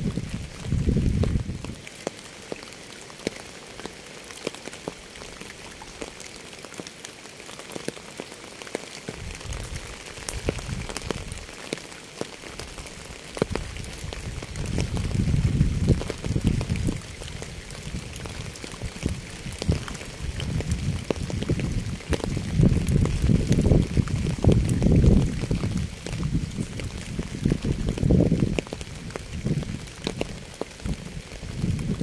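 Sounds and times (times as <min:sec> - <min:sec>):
steady rain hissing: 0:00.0 - 0:32.0.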